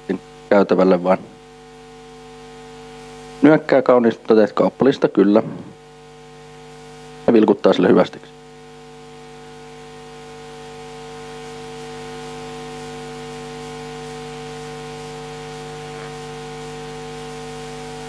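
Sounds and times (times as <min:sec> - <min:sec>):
electrical mains hum: 0:00.0 - 0:18.0
faint hiss: 0:09.1 - 0:18.0.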